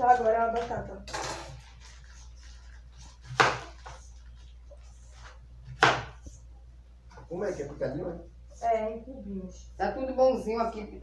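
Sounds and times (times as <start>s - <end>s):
knife chopping on cutting board: 3.0s - 4.0s, 5.2s - 6.3s.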